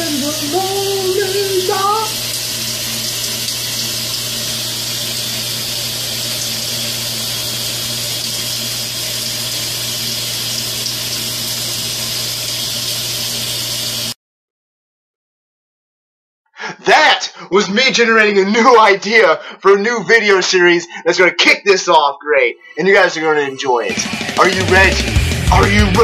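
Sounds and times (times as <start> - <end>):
water running: 0.0 - 14.2.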